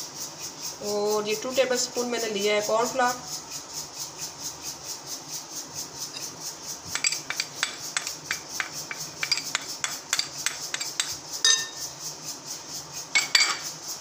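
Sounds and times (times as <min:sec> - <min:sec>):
metal spoon tapping and scraping: 0:06.9 - 0:11.9, 0:13.2 - 0:13.7
ringing clink: 0:07.0 - 0:11.9, 0:13.2 - 0:13.6.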